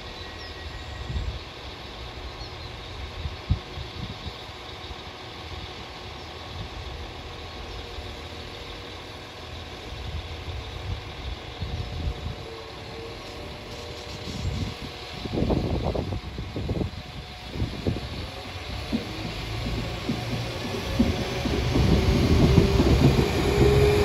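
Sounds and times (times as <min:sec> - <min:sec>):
diesel train idling: 0:00.0 - 0:24.0.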